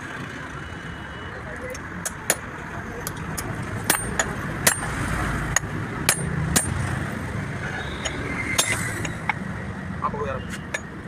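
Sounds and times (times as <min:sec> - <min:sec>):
hammer striking metal: 0:02.0 - 0:06.9, 0:07.9 - 0:09.4.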